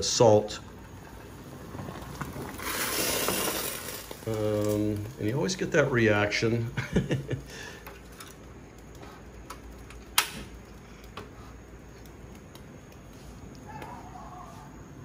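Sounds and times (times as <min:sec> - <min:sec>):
water boiling in a pot: 0:00.0 - 0:06.5
sharp click: 0:10.1 - 0:10.5.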